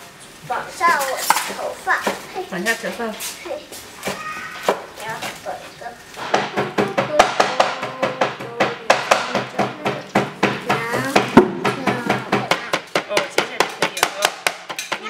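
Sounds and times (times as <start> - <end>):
cleaver chopping on wooden board: 6.2 - 15.0.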